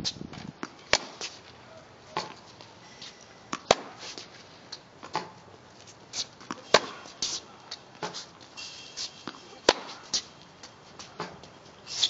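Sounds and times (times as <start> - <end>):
tennis ball pops: 0.9 - 1.3, 3.5 - 4.0, 9.3 - 10.0
shoe scuffs on court: 2.1 - 10.3, 10.9 - 12.0.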